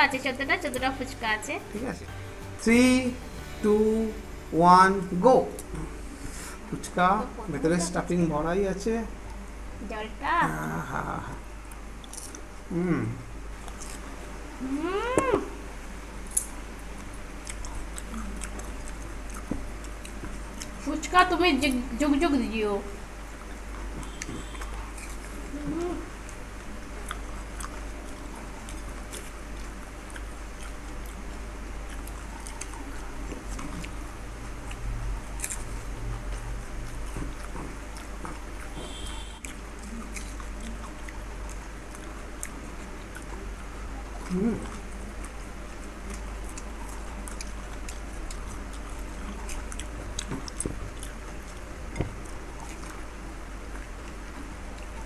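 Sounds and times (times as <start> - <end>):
low steady hum: 0.0 - 55.0
people chewing crunchy shells: 11.7 - 12.9, 13.5 - 14.3, 16.2 - 20.8, 23.4 - 55.0
crisp shells crackling and chewed: 26.2 - 43.5.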